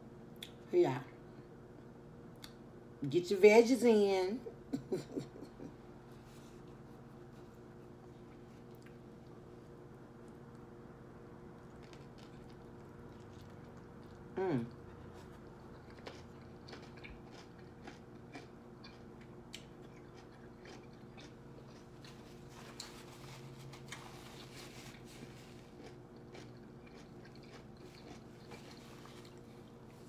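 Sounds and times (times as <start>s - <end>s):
faint steady hum: 0.0s - 30.0s
crunchy chewing: 6.4s - 10.6s, 11.5s - 30.0s.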